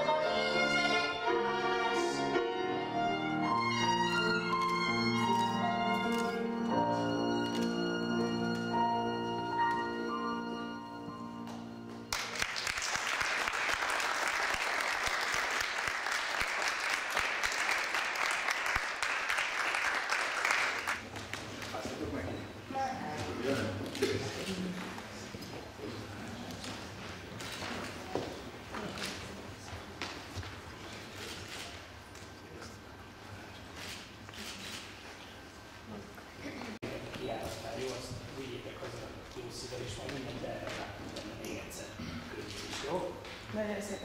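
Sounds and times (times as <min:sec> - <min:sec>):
low accompaniment: 0:00.0 - 0:12.4
audience applause: 0:12.1 - 0:21.6.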